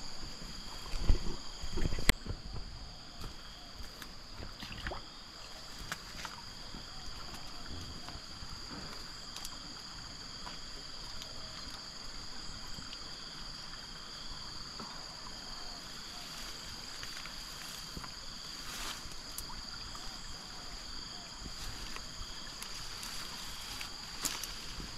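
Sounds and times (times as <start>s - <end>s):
insects droning: 0.0s - 24.9s.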